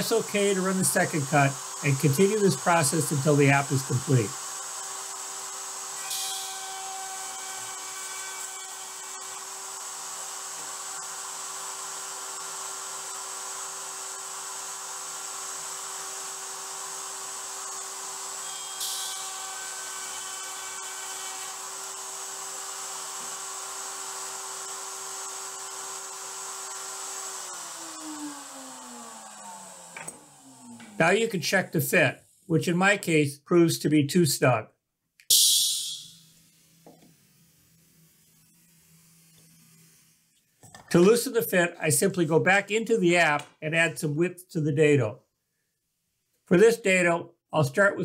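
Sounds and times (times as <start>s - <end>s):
wood router whining: 0.0s - 31.8s, 36.1s - 40.5s
hissing burst: 35.2s - 36.8s.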